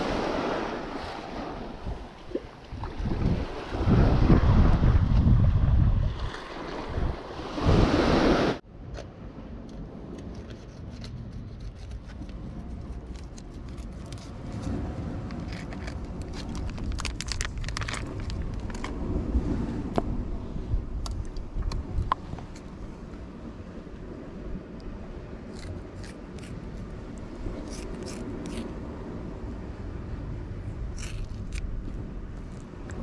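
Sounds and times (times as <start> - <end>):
sea surf: 0.0 - 5.0, 6.1 - 8.6
wind buffeting microphone: 0.0 - 33.0.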